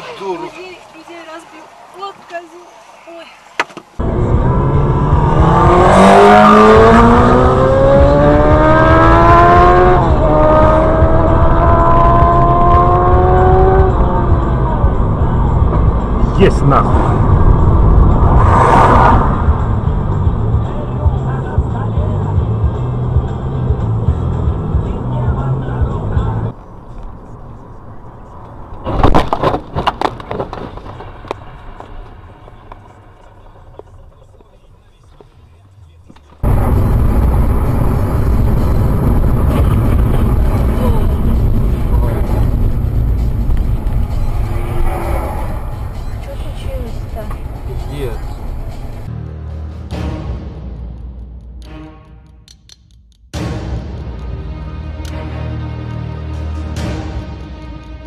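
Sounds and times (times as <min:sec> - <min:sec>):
road and wind rumble: 0:00.0 - 0:50.0
car engine accelerating: 0:04.0 - 0:29.1, 0:30.0 - 0:50.2
car crash impacts and rattling: 0:28.8 - 0:31.9.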